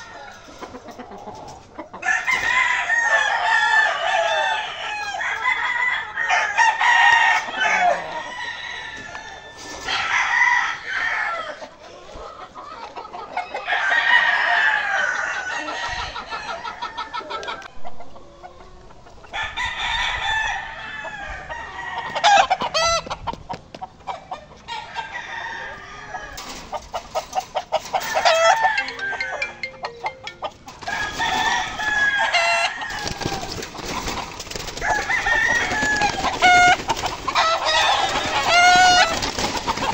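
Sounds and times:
roosters crowing: 0:00.0 - 0:12.0, 0:13.4 - 0:23.3, 0:23.9 - 0:39.9
chickens clucking: 0:00.0 - 0:39.9.

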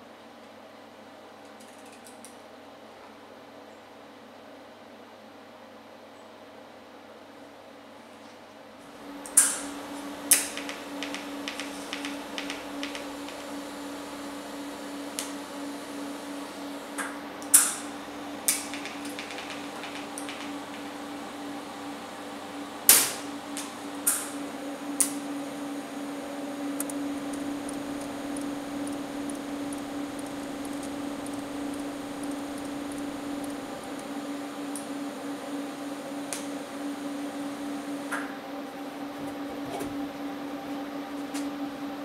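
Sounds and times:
welding arc humming: 0:08.9 - 0:38.1
sharp clicks and ticks: 0:26.8 - 0:34.1.

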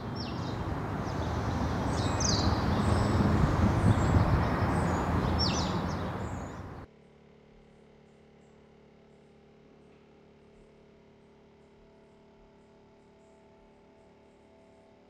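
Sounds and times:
birds chirping: 0:00.0 - 0:06.9
low rushing street rumble: 0:00.0 - 0:06.9.

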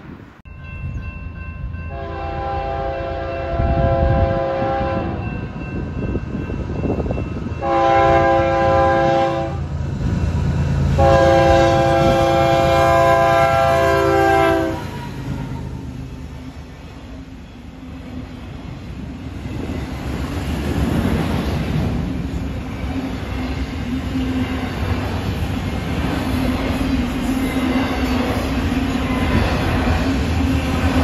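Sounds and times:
rolling train rumble: 0:00.0 - 0:31.0
locomotive air horn blasts: 0:01.9 - 0:05.2, 0:07.6 - 0:09.7, 0:11.0 - 0:15.6.

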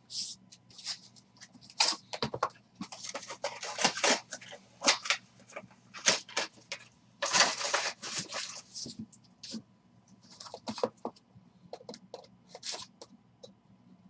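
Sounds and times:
cardboard and wrapper crinkles: 0:02.8 - 0:05.2, 0:05.9 - 0:08.9
loud wrapper rustle: 0:07.2 - 0:08.8.

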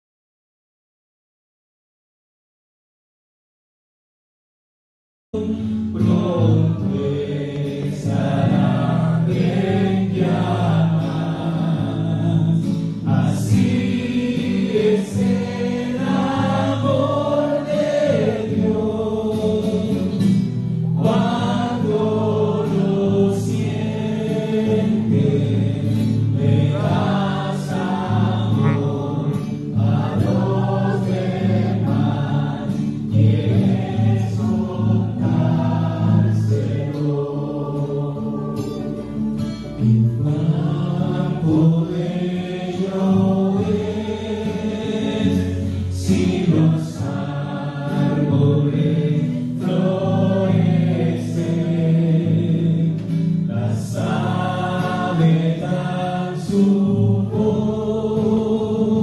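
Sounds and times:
acoustic guitar: 0:05.4 - 0:59.0
congregation singing: 0:05.4 - 0:59.0
lead singer on microphone: 0:21.0 - 0:59.0.

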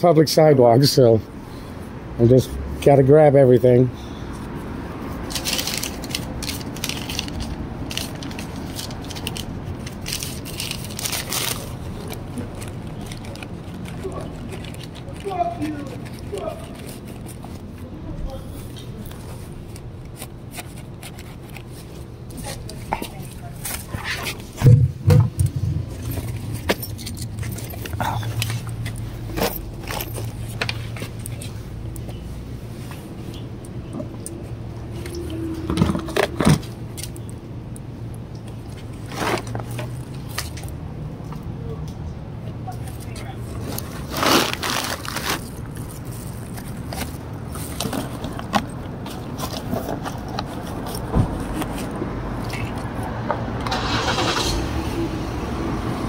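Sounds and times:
rustling and crinkling of belongings: 0:04.3 - 0:54.3
loud thumps: 0:24.6 - 0:25.9.

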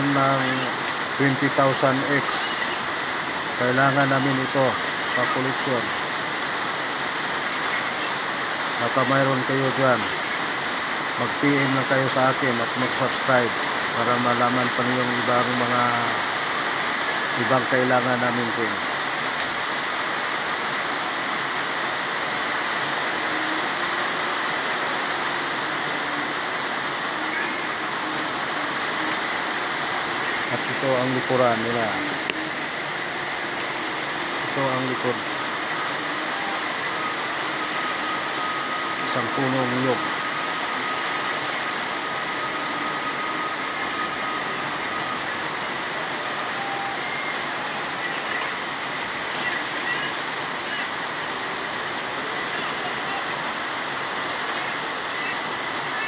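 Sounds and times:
steady rushing noise: 0:00.0 - 0:56.0.

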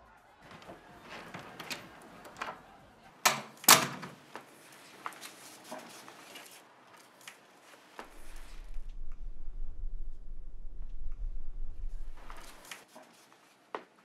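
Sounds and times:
low hum: 0:08.0 - 0:12.7.

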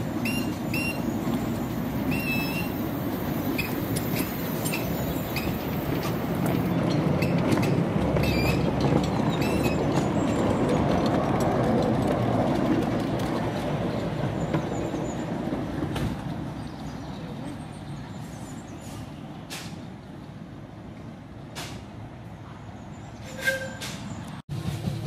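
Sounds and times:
wagons rolling on rails: 0:00.0 - 0:17.0.

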